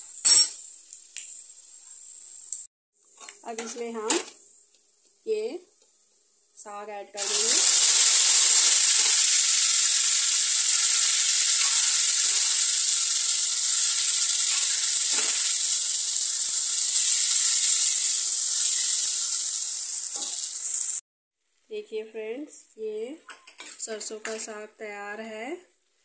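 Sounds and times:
greens sizzling in hot oil: 0:07.2 - 0:21.0.

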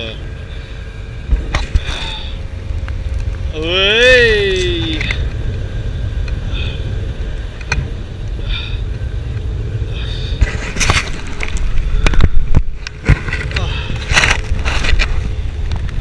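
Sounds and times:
wind buffeting microphone: 0:00.0 - 0:16.0
sharp knocks and rustles: 0:10.4 - 0:16.0.

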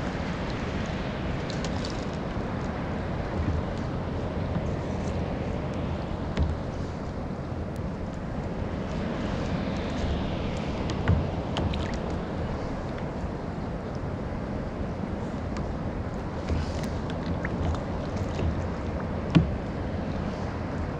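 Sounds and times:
water lapping against kayak hull: 0:00.0 - 0:20.9
wind rumble on microphone: 0:00.0 - 0:20.9
light knocks on hull: 0:03.2 - 0:05.0, 0:06.1 - 0:07.1, 0:10.0 - 0:13.1, 0:15.5 - 0:19.8.

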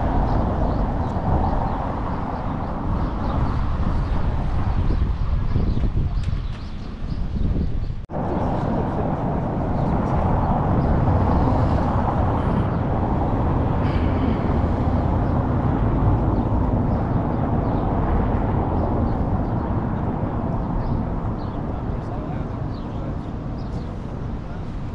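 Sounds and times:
wind buffeting microphone: 0:00.0 - 0:24.9.

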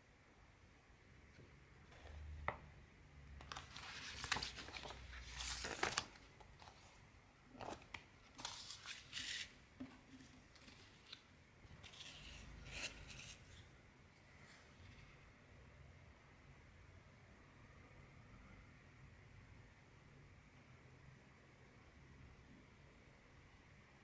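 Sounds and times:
paper pages rustling: 0:03.4 - 0:07.0, 0:07.6 - 0:13.7.

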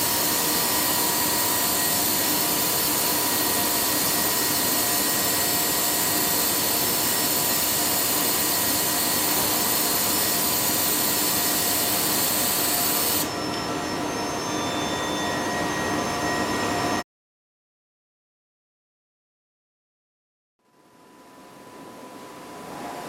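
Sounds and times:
inkjet printer running: 0:00.0 - 0:13.3.

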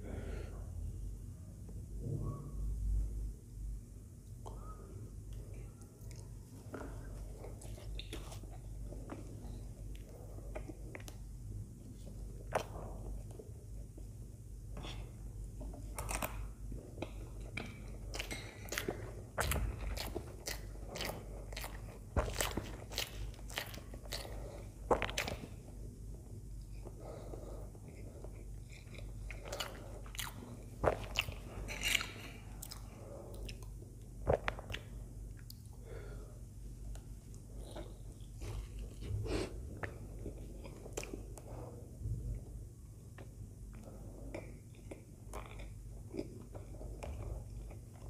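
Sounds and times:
close chewing mouth clicks: 0:17.1 - 0:25.5.

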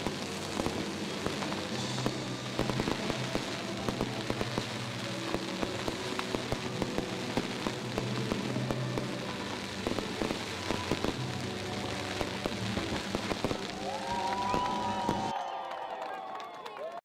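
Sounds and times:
fireworks crackling: 0:00.0 - 0:15.3
loud firework cracks: 0:00.0 - 0:15.4.

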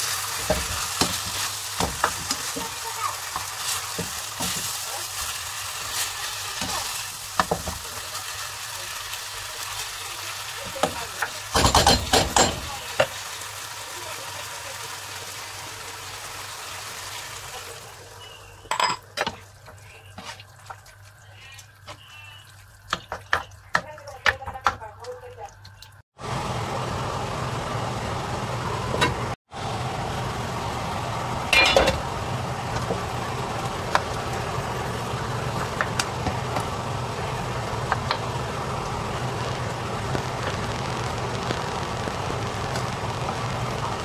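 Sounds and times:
food sizzling in a skillet: 0:00.0 - 0:24.0, 0:29.8 - 0:44.0
spatula knocking on a pan: 0:22.9 - 0:25.2.

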